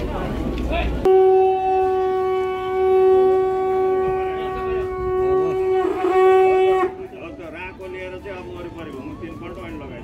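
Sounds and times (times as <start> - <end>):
conch shell blown: 1.1 - 7.1.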